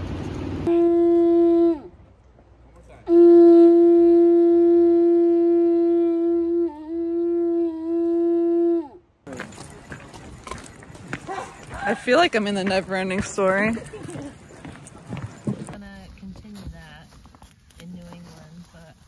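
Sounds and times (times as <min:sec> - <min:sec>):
horn blown by mouth: 0:00.7 - 0:02.1, 0:03.0 - 0:09.2.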